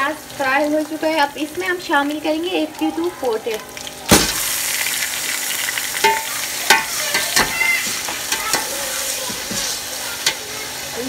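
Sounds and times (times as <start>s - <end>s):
food sizzling in hot oil: 0.0s - 11.0s
metal spoon scraping a pot: 6.0s - 10.4s.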